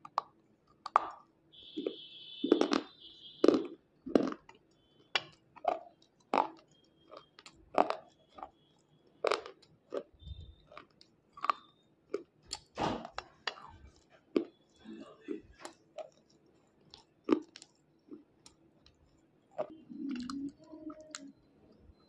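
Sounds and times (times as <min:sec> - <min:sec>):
chalky pencil crunching in teeth: 0:02.5 - 0:14.6.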